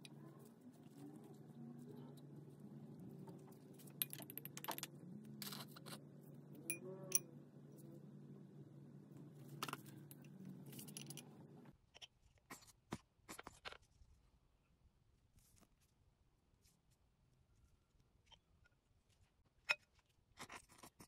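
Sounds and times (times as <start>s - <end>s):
low steady hum: 0.0s - 11.8s.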